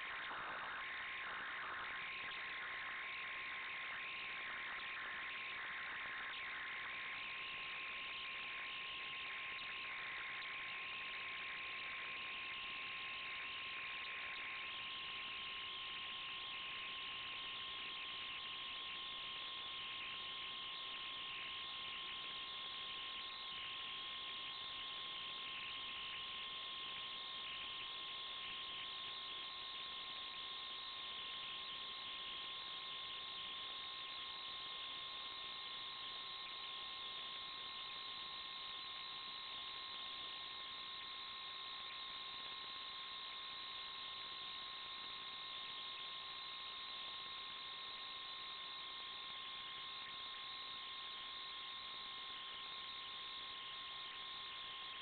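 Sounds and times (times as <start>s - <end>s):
electronic hiss: 0.0s - 6.9s.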